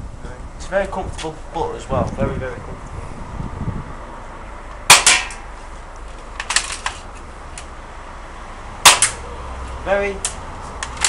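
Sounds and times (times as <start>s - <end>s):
bb gun snap: 4.8s - 5.4s.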